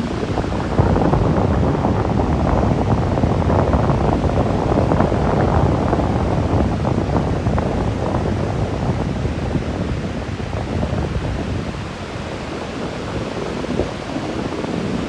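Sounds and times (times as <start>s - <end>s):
sea surf breaking on beach: 0.0s - 15.0s
wind buffeting microphone: 0.0s - 15.0s.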